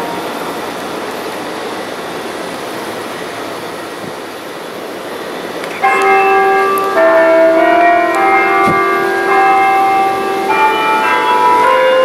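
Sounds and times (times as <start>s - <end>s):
church bells striking: 0.0s - 1.2s, 5.8s - 12.0s
rushing city noise: 0.0s - 12.0s.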